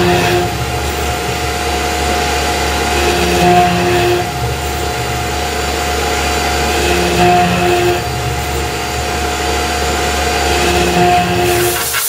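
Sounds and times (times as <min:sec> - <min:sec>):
milling machine whine: 0:00.0 - 0:12.0.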